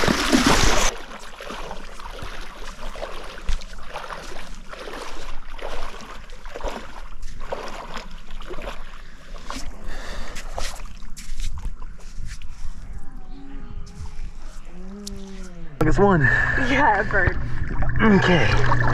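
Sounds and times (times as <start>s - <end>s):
small splashes: 0.0s - 11.1s
lake water lapping: 0.0s - 13.0s.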